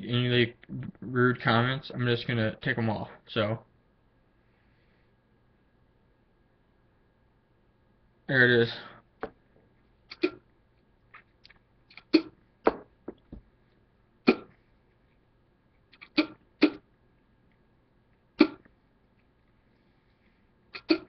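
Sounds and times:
spitting and lip smacks: 10.1s - 10.4s, 11.1s - 12.4s, 14.3s - 14.6s, 15.9s - 16.9s, 18.4s - 18.8s, 20.7s - 21.0s.

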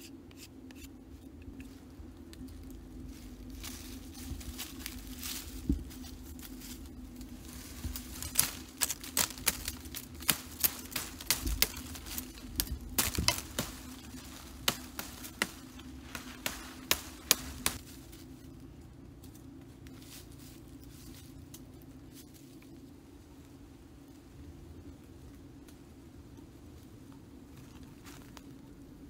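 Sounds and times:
dry branches cracking and snapping: 1.6s - 22.8s.

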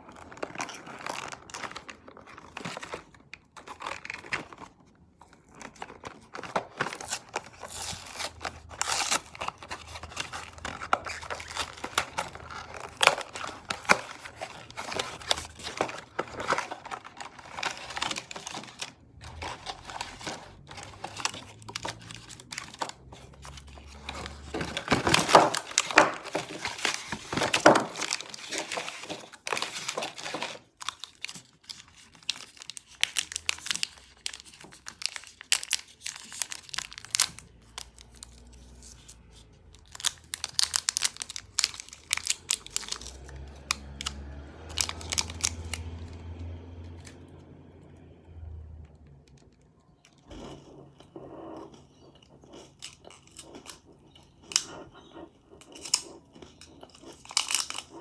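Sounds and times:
wrapper tearing: 0.0s - 47.2s, 52.6s - 58.0s
plastic wrappers crinkling: 0.0s - 47.4s, 49.1s - 58.0s
cardboard box being opened: 5.4s - 32.8s.

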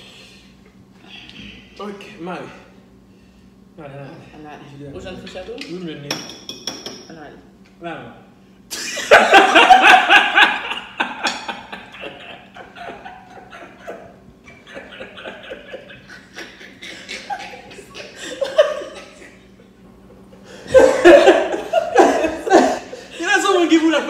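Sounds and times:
woman laughing: 8.7s - 23.1s
man laughing: 8.7s - 23.6s.

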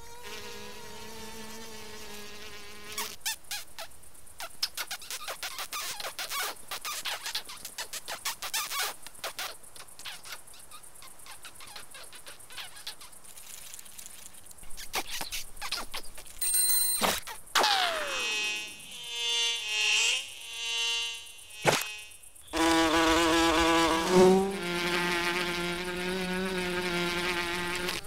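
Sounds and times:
squeaky clicking cartoon chatter: 4.4s - 13.2s.

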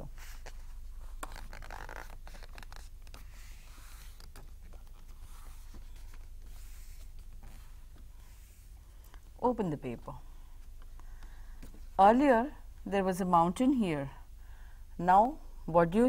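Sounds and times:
faint low hum: 0.0s - 16.0s
paper rustling and creasing: 0.2s - 8.7s.

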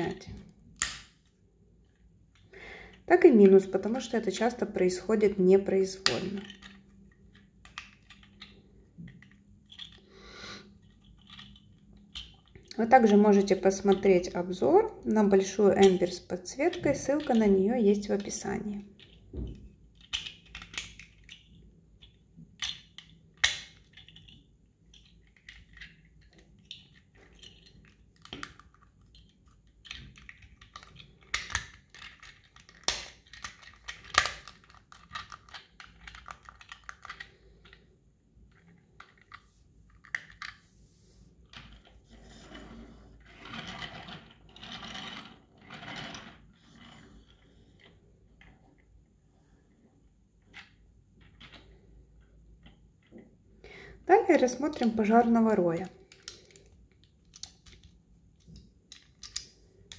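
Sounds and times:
plastic clicks and snaps: 0.4s - 1.3s, 29.9s - 37.8s, 56.1s - 59.9s
plastic scrapes and rattles: 23.9s - 40.8s, 41.4s - 48.8s.

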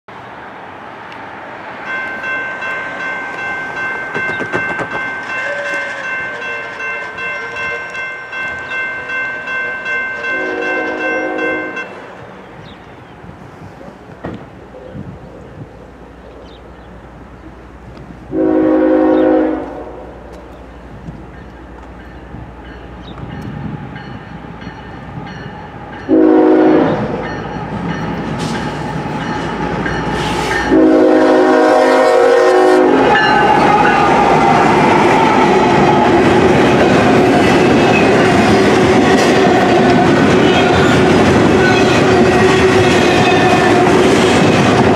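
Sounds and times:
crossing warning bell ringing: 1.8s - 12.2s, 20.7s - 44.0s
locomotive horn blasts: 5.4s - 8.0s, 9.7s - 12.0s, 18.3s - 20.2s, 26.1s - 27.2s, 30.2s - 34.0s.

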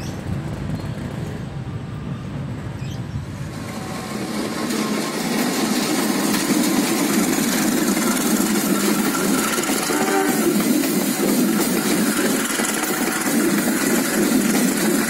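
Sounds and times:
train wheels rolling on rails: 0.0s - 15.0s
locomotive engine running: 3.4s - 15.0s.

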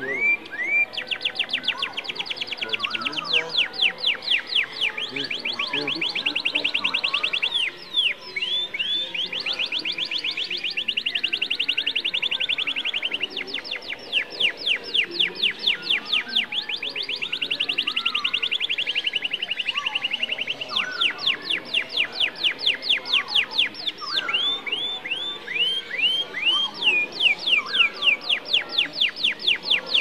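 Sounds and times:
canary singing in trills: 0.0s - 30.0s.

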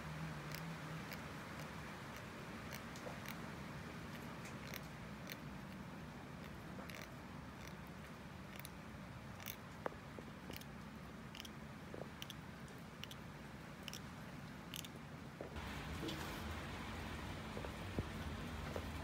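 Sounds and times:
cat chewing fish: 0.4s - 13.2s, 13.8s - 15.0s.

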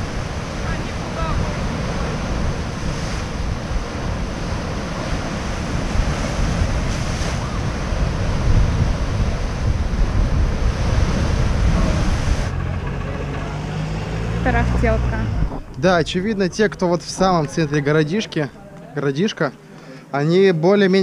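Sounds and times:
surf breaking on rocks: 0.0s - 13.0s
wind buffeting microphone: 0.0s - 18.2s.

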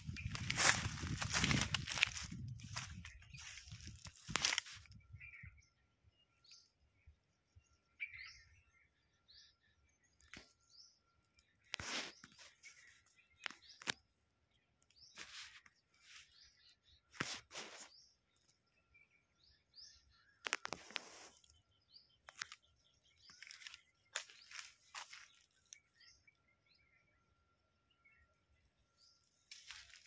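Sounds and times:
rustling crackles: 0.0s - 4.9s
small birds chirping: 0.0s - 30.0s.

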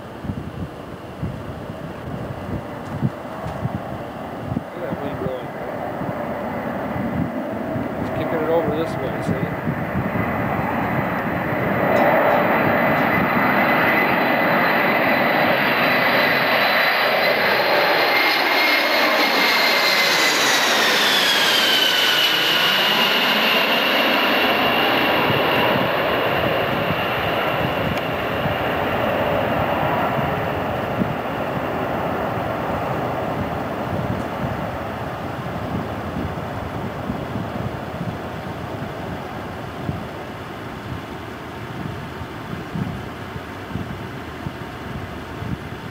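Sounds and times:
jet engines roaring overhead: 0.0s - 45.9s.

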